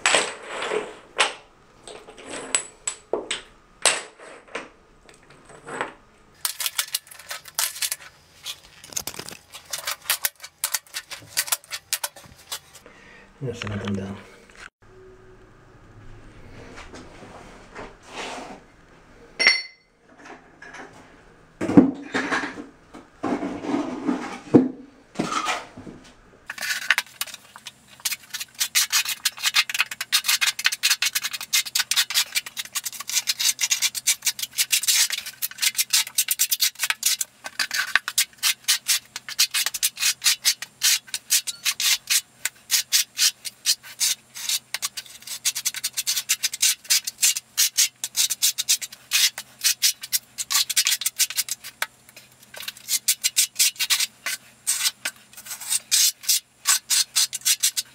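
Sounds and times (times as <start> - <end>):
trowel scraping mortar: 6.4 - 12.8, 26.5 - 57.9.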